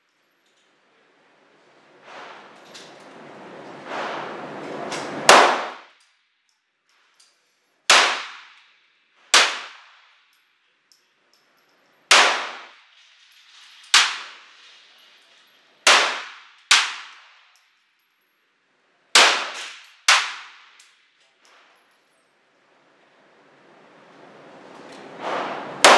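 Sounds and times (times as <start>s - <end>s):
pistol shots indoors: 4.0s - 6.1s, 7.9s - 11.0s, 12.1s - 12.9s, 13.5s - 14.6s, 15.8s - 17.6s, 19.1s - 21.2s, 25.2s - 25.9s.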